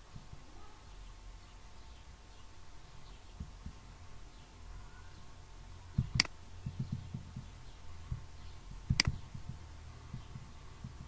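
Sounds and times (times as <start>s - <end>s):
computer mouse clicks: 6.0s - 6.4s, 8.9s - 9.5s.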